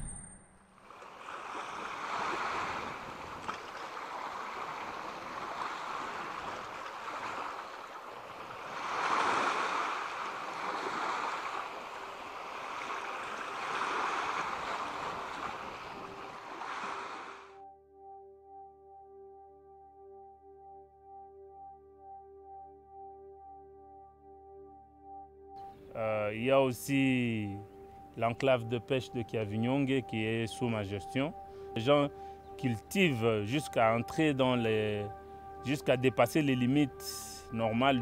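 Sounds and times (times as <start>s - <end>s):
faint steady tone: 9.4s - 38.0s.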